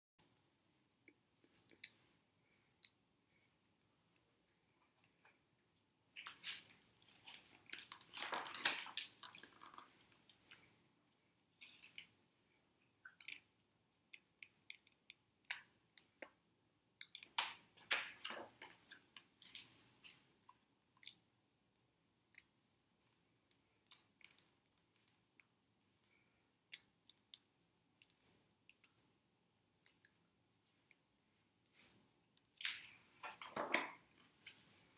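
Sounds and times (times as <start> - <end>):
paper page rustling: 6.2 - 10.2.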